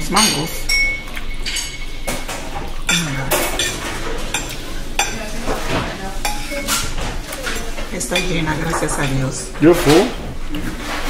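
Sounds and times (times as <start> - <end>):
dishes and cutlery clattering: 0.0 - 11.0
room hum: 0.0 - 11.0.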